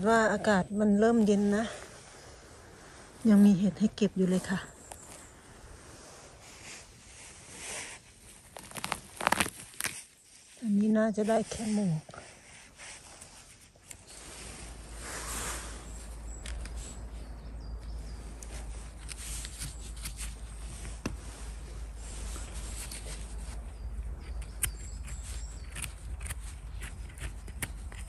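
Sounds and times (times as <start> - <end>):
twigs crackling and snapping: 8.2 - 10.3, 17.8 - 21.2, 22.7 - 28.0.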